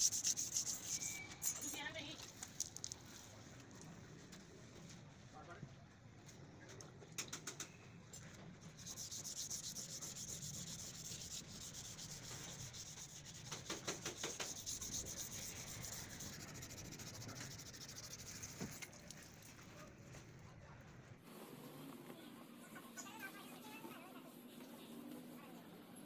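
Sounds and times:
hand sanding strokes: 0.0s - 1.8s, 8.8s - 19.0s.

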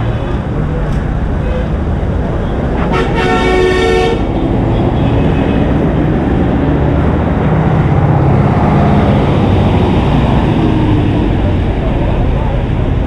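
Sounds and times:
large truck engine passing: 0.0s - 13.0s
street traffic: 0.0s - 13.0s
vehicle horn honking: 2.8s - 4.3s.

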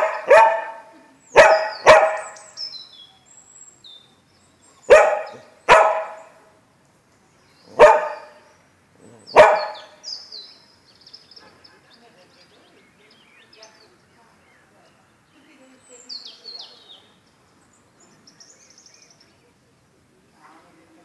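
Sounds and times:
dog barking: 0.0s - 2.4s, 4.9s - 6.4s, 7.7s - 8.4s, 9.2s - 10.0s.

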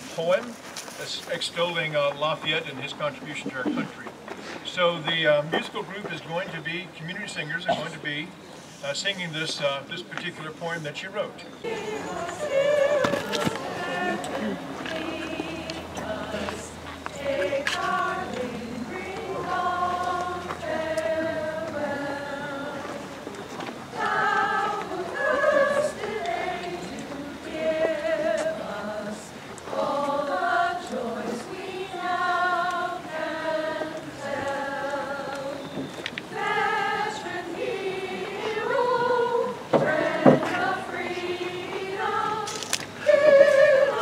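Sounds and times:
choir singing a hymn: 11.1s - 44.0s.

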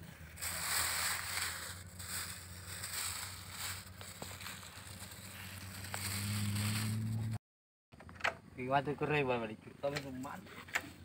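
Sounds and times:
plastic bag rustling: 0.0s - 7.4s.

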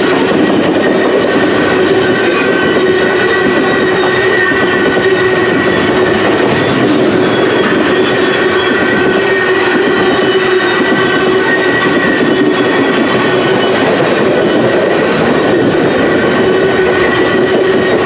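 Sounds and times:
high-pitched wheel squeal: 0.0s - 18.0s
train wheels rumbling on rails: 0.0s - 18.0s.

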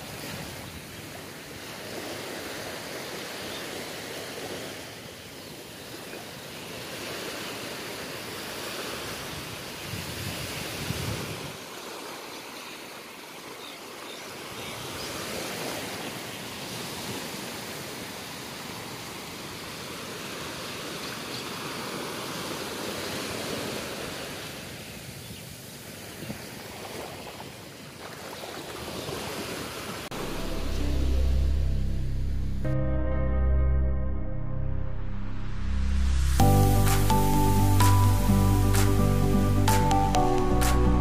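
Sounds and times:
small waves washing onto beach: 0.0s - 30.3s
music: 30.1s - 41.0s.

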